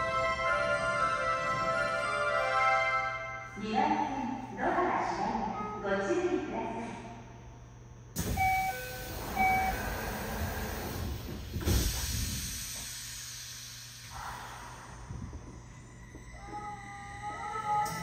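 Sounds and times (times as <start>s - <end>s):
train rumble: 0.0s - 6.1s, 8.2s - 18.0s
air hiss: 8.2s - 15.5s.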